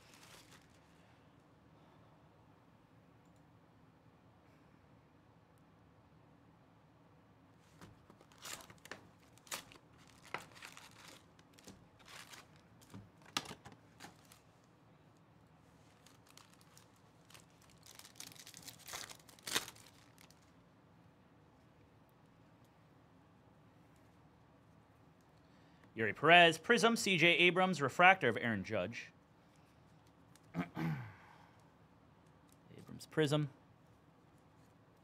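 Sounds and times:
foil wrappers crinkling and tearing: 0.0s - 0.9s, 8.1s - 14.5s, 15.9s - 20.5s.

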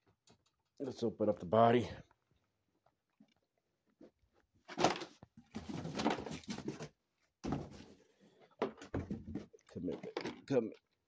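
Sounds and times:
rustling and bumping handling noise: 4.6s - 10.6s.

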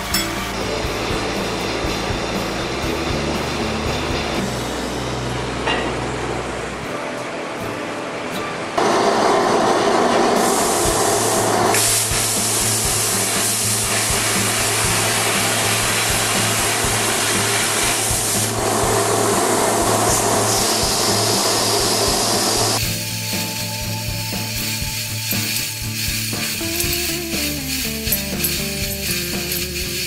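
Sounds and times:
low hum: 0.1s - 7.6s
plasma cutter hissing: 9.2s - 30.0s.

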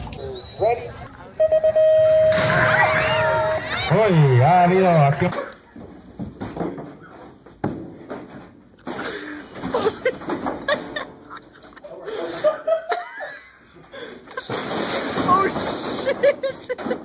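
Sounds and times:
people laughing: 8.9s - 14.7s, 15.8s - 17.0s.

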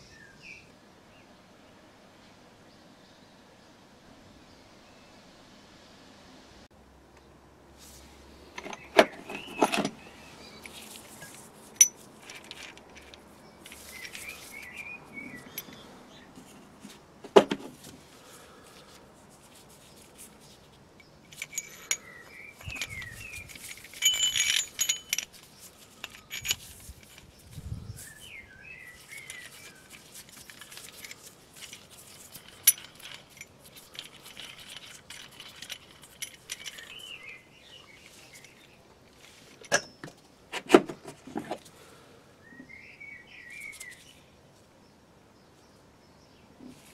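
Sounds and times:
birds chirping faintly: 7.1s - 17.0s, 18.0s - 40.4s, 41.7s - 46.9s
steel tool parts clinking: 8.6s - 10.0s, 10.6s - 15.8s, 21.0s - 27.5s, 29.0s - 38.8s
ringing metal clatter: 21.3s - 27.4s, 29.0s - 37.4s.

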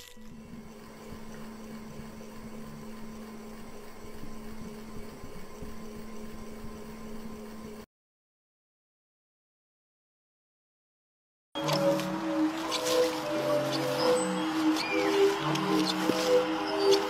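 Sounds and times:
steady low hum: 0.0s - 7.9s, 11.6s - 17.0s.

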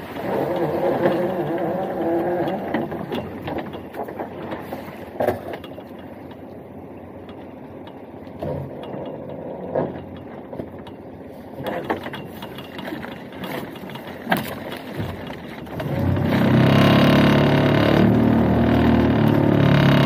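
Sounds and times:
outboard motor running: 0.0s - 20.0s
knocks and clatter of gear: 0.4s - 6.4s, 7.2s - 16.4s.

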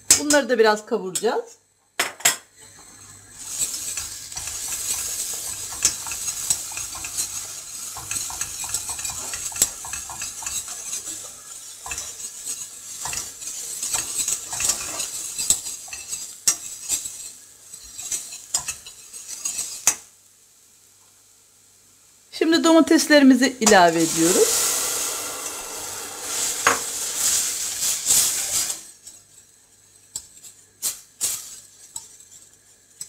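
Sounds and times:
paste sizzling in frying fat: 2.6s - 33.0s
wire whisk scraping metal saucepan: 3.4s - 20.0s, 23.6s - 33.0s.

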